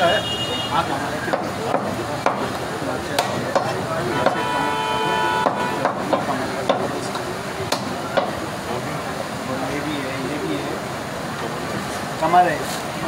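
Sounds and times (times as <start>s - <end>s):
butcher shop background noise: 0.0s - 13.0s
cleaver chopping on wooden block: 1.2s - 2.5s, 3.2s - 4.4s, 5.4s - 6.9s, 7.7s - 8.4s.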